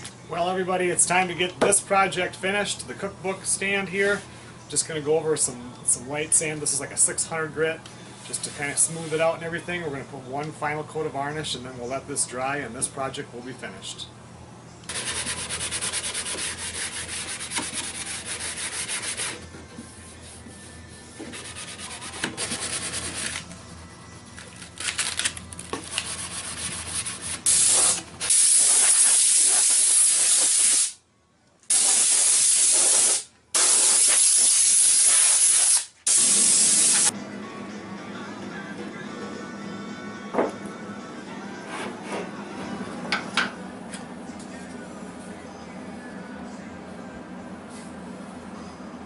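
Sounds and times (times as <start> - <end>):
sandpaper rubbing on wood: 14.9 - 19.4, 21.2 - 23.4, 25.9 - 28.0
compressed air hissing: 27.4 - 31.0, 31.7 - 37.1.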